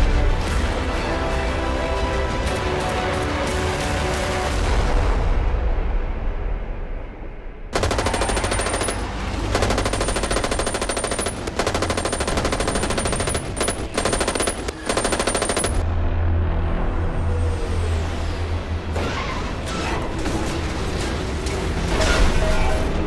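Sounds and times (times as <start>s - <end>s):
automatic gunfire bursts: 7.8s - 15.8s.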